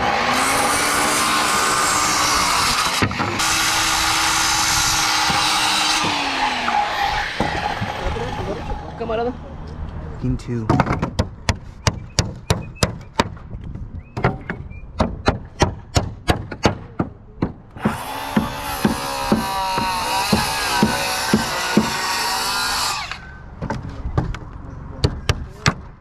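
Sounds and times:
circular saw cutting wood: 0.0s - 9.1s, 17.8s - 23.4s
hammer driving nails into wood: 14.2s - 22.1s.

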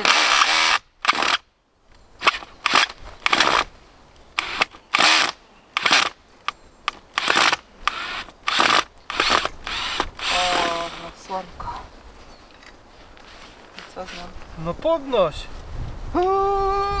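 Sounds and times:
hand tool digging into soil: 6.9s - 11.5s, 13.2s - 14.4s.

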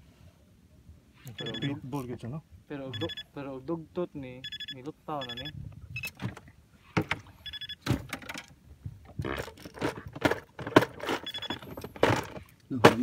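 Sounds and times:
high ringing chirps: 1.3s - 1.8s, 2.9s - 3.4s, 4.4s - 6.1s, 7.4s - 7.8s.

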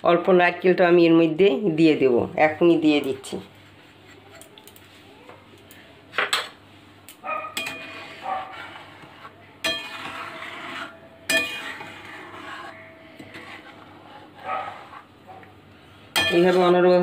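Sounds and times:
spatula scraping a metal pan: 7.5s - 15.2s, 16.1s - 16.8s.

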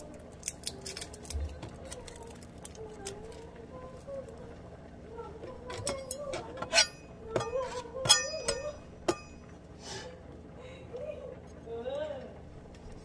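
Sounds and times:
fingernails clicking on garlic peel: 0.4s - 3.4s.

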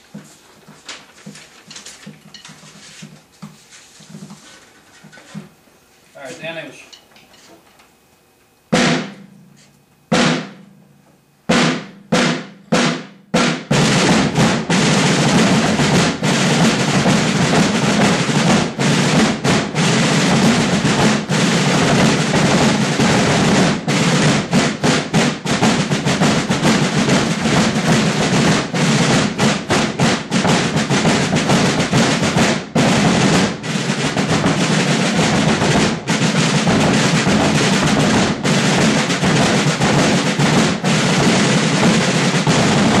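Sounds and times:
snare drum line cadence: 6.2s - 6.9s, 8.7s - 43.0s
bass drum: 11.5s - 43.0s.

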